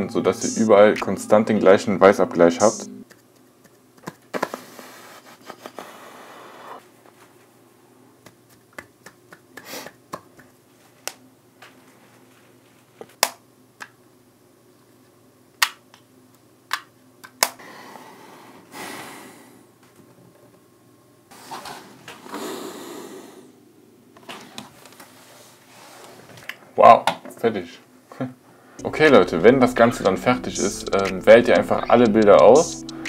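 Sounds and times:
sharp clicks and taps: 3.0 - 4.3, 29.3 - 33.0.

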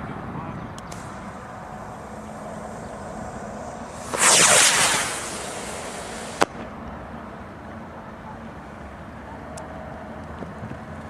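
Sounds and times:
rocket motor rushing hiss: 0.9 - 6.7
sharp pop: 2.0 - 6.7.

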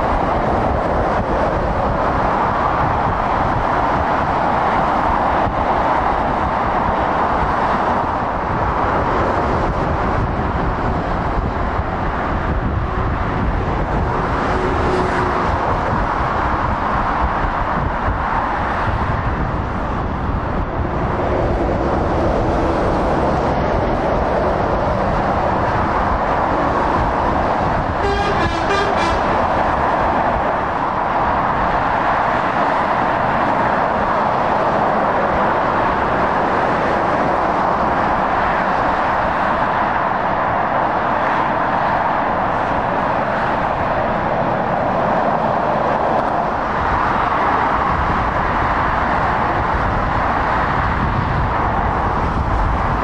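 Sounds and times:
motorway traffic: 0.0 - 53.0
short horn toot: 28.0 - 29.4.

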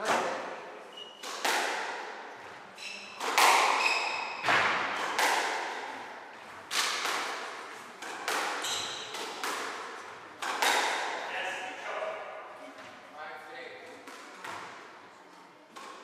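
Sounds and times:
squash ball hitting rackets and walls: 0.0 - 11.8, 13.9 - 16.0
shoes squeaking on wooden floor: 8.6 - 9.1.

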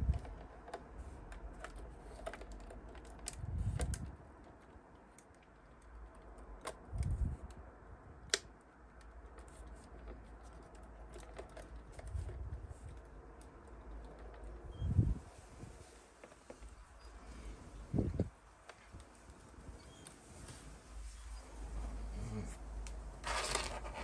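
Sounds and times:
plastic parts clicking and tapping: 0.0 - 14.7.

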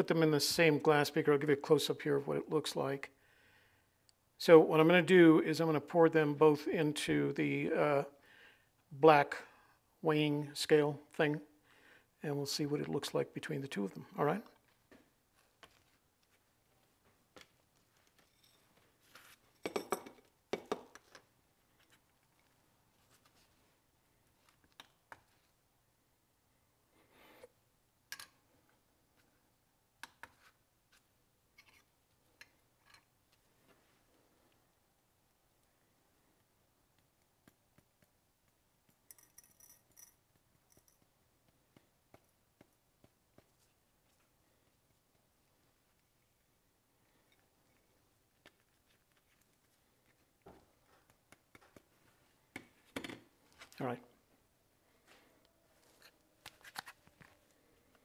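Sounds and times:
glass clinks and rustles: 18.2 - 18.8, 19.4 - 20.2, 39.1 - 41.0.

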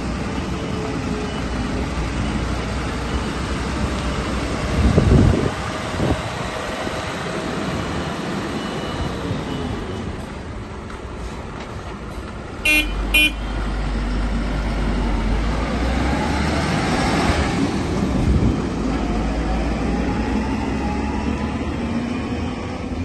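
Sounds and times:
diesel lorry engine pulling away: 0.0 - 23.0
horn toots: 12.6 - 13.6.

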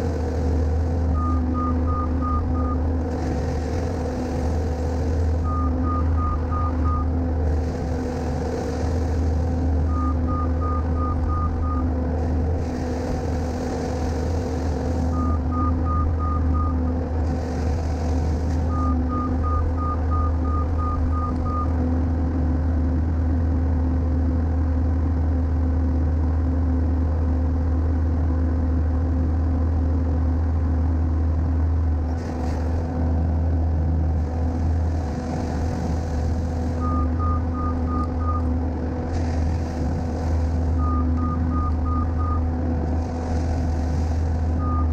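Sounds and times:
diesel engine running: 0.0 - 44.9
reverse alarm beeping: 1.1 - 2.8, 5.4 - 7.1, 9.9 - 11.9, 15.1 - 16.8, 18.7 - 21.8, 36.8 - 38.5, 40.8 - 42.5, 44.6 - 44.9.

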